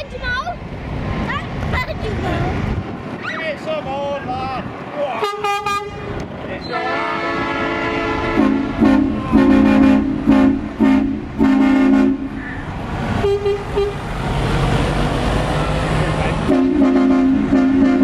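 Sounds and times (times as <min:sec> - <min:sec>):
truck engine rumble: 0:00.0 - 0:18.0
truck air horn blasts: 0:05.2 - 0:12.6, 0:13.2 - 0:14.0, 0:16.4 - 0:18.0.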